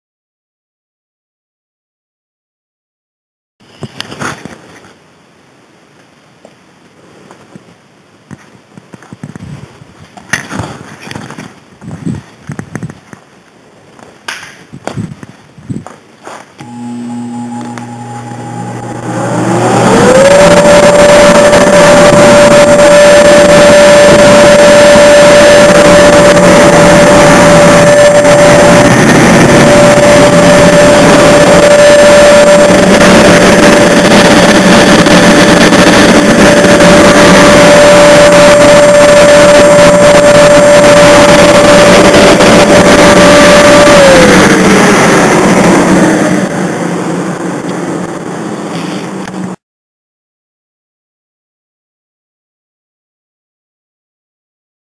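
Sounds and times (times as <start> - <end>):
blower motor whine: 16.6 - 49.6
rushing air: 18.8 - 49.6.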